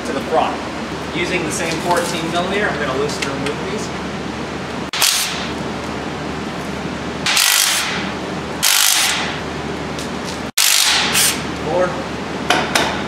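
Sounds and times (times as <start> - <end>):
steady low hum: 0.0 - 13.0
impact wrench bursts: 4.9 - 5.5, 7.3 - 8.0, 8.6 - 9.4, 10.6 - 11.4.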